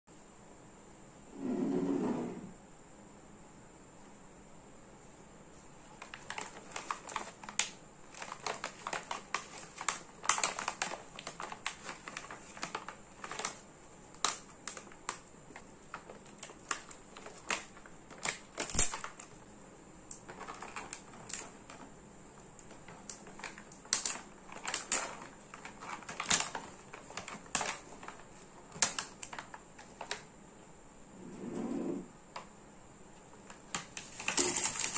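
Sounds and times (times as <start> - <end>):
plastic and foil wrappers crinkling: 5.8 - 30.3, 33.3 - 34.9.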